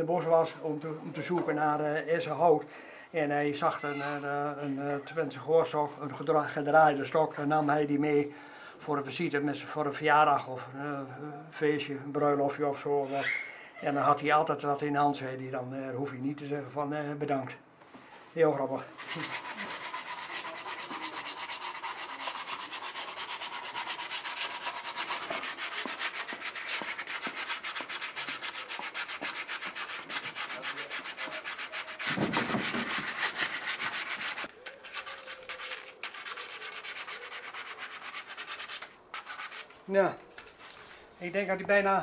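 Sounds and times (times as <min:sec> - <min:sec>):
sandpaper rasping on wood: 0:18.9 - 0:39.8.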